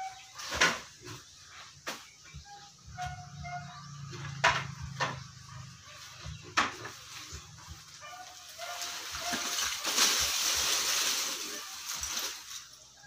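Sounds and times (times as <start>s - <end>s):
animal calls: 2.2s - 12.2s
knocks and thuds of sack: 8.6s - 12.8s.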